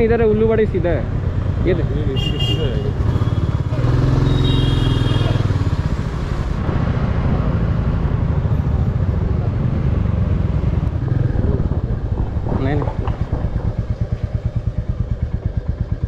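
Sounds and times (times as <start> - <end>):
motorcycle engine at low revs: 2.9 - 16.0
road and wind hiss: 5.5 - 13.3.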